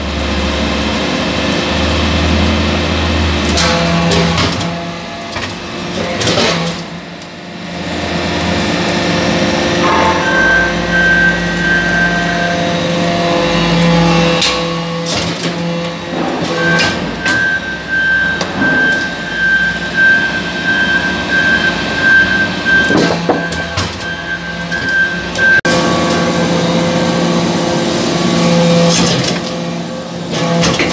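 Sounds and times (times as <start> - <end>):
thin high whine: 9.6 - 12.8.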